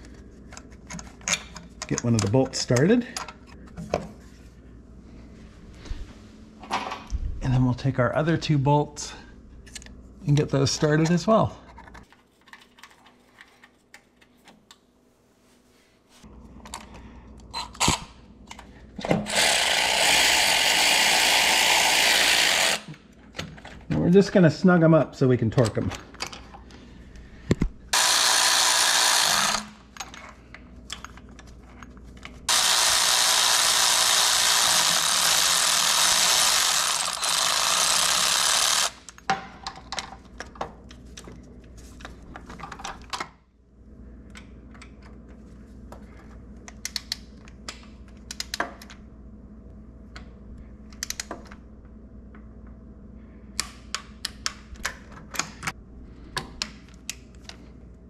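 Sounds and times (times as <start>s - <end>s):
cordless ratchet running: 19.3s - 22.9s, 27.9s - 29.8s, 32.5s - 39.1s
torque wrench ratchet clicks: 28.0s - 29.7s, 32.5s - 39.1s.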